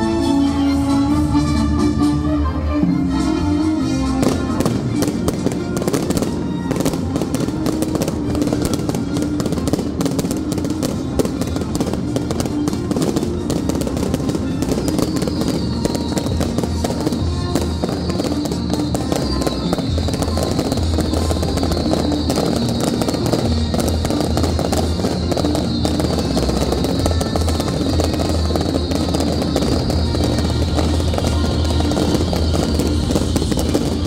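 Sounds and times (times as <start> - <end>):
fireworks crackling overhead: 0.0 - 34.0
music playing: 0.0 - 34.0.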